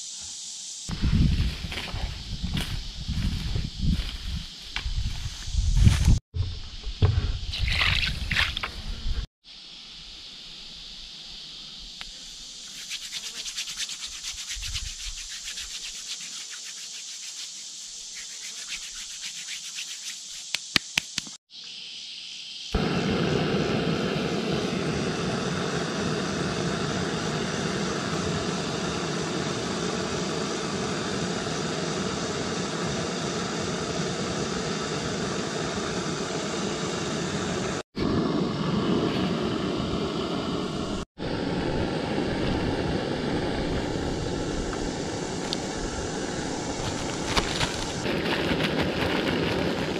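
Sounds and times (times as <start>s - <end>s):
camp stove burner hissing: 0.0s - 6.2s, 22.2s - 49.9s
rustling: 46.8s - 49.9s.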